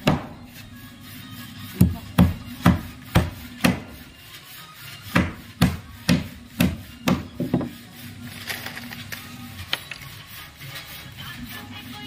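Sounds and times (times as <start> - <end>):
hammer driving a nail into wood: 5.1 - 7.7.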